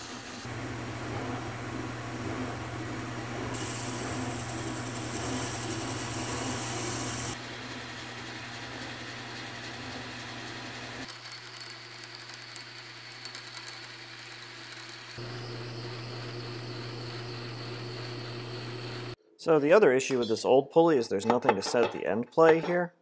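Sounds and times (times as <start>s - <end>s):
lathe motor hum: 0.4s - 11.1s, 15.2s - 19.2s
drill boring metal: 0.5s - 11.2s, 14.2s - 19.2s.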